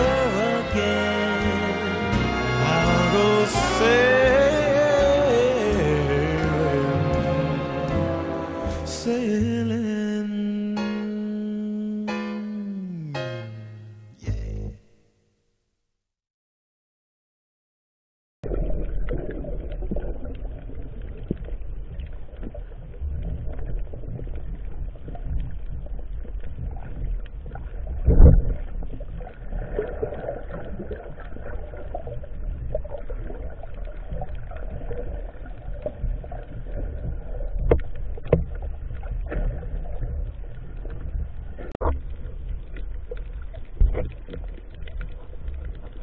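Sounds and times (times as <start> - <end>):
underwater rumble of moving water: 0.0 - 10.0, 18.4 - 46.0
underwater knocks: 18.4 - 46.0.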